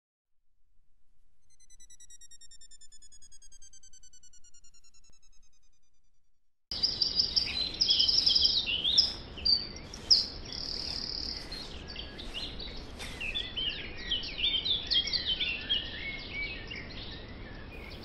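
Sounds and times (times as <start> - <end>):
birds chirping and singing: 6.7 - 18.0.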